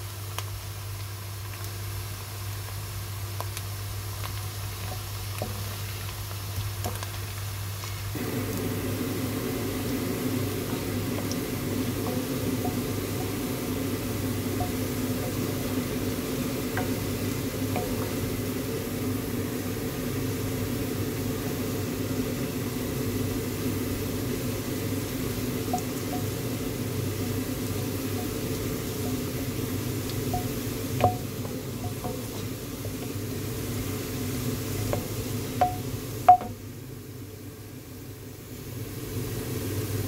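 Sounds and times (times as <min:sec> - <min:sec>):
low mechanical hum: 0:00.0 - 0:40.0
onions sizzling in oil: 0:00.0 - 0:40.0
wooden spoon stirring: 0:09.8 - 0:18.9, 0:27.4 - 0:36.5.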